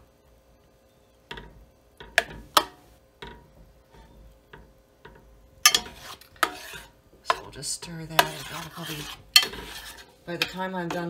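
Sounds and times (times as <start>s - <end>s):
metal spoon scraping saucepan: 5.6s - 11.0s.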